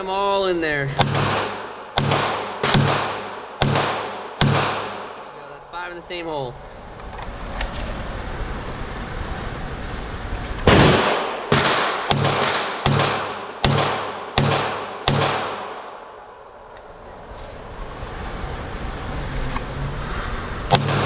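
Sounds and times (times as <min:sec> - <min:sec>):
pistol shots ringing indoors: 0:01.0 - 0:05.3, 0:10.7 - 0:16.0.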